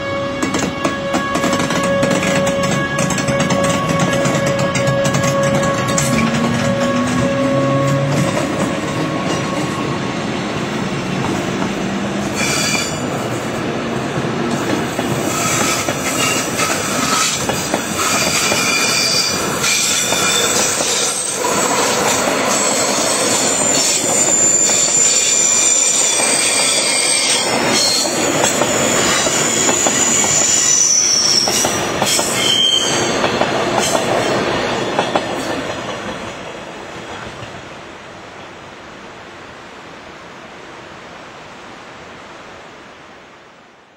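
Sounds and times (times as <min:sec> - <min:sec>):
train wheels rumbling on rails: 0:00.0 - 0:38.5
high-pitched wheel squeal: 0:00.6 - 0:08.3, 0:12.3 - 0:13.0, 0:15.2 - 0:21.9, 0:22.5 - 0:33.3.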